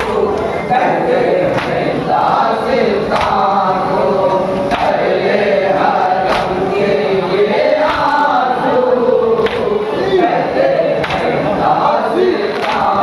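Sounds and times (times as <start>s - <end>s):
men chanting a lament: 0.0s - 13.0s
chest-beating slaps: 1.5s - 1.8s, 3.1s - 3.5s, 4.7s - 5.1s, 6.2s - 6.6s, 7.8s - 8.2s, 9.4s - 9.7s, 11.0s - 11.4s, 12.6s - 12.9s.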